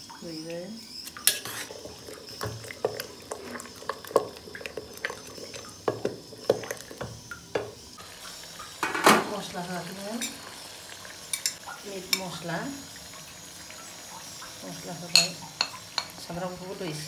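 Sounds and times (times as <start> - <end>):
spoon stirring and scraping pot: 1.1 - 7.8.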